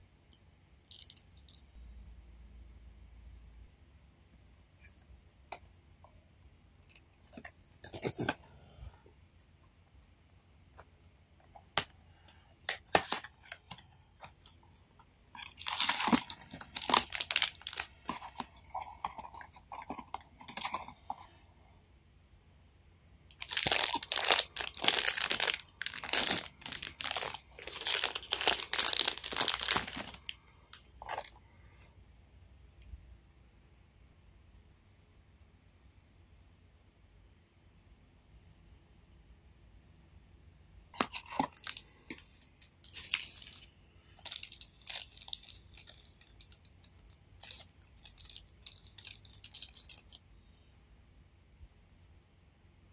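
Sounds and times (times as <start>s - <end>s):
packaging tearing and crinkling: 7.4s - 8.4s, 12.7s - 13.8s, 15.4s - 20.9s, 23.3s - 30.3s, 41.0s - 46.6s, 47.4s - 50.2s.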